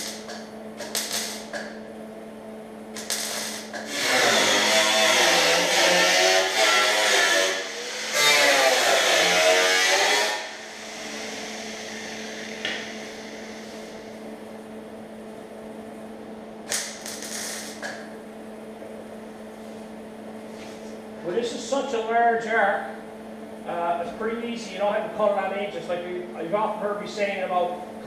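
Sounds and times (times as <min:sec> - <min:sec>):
grinder cutting sheet metal: 0:00.0 - 0:01.6, 0:03.0 - 0:13.9
steady hum: 0:00.0 - 0:28.0
short bursts of grinding: 0:03.0 - 0:12.4.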